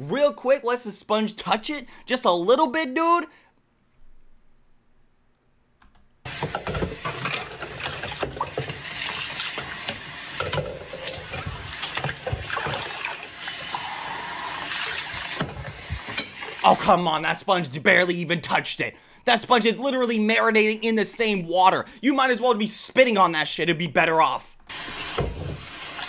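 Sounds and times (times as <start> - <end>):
tap running into water: 6.3 - 16.6, 24.7 - 26.0
sponge scrubbing dishes: 6.3 - 16.8.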